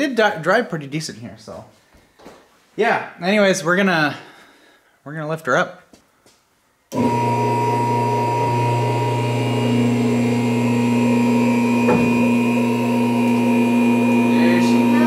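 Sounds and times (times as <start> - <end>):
hydraulic pump motor humming: 6.9 - 15.0.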